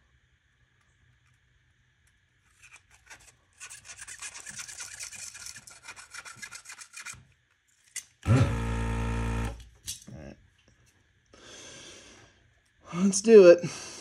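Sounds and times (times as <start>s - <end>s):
scratchy scrubbing: 2.4s - 7.3s
loud steady hum: 8.3s - 9.7s.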